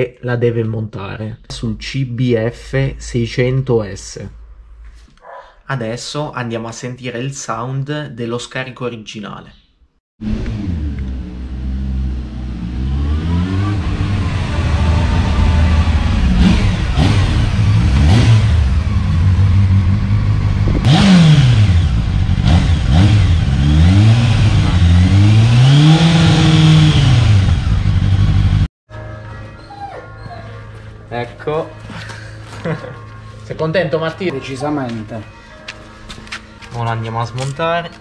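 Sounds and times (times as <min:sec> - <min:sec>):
motorcycle engine revving: 0:10.2 - 0:28.7.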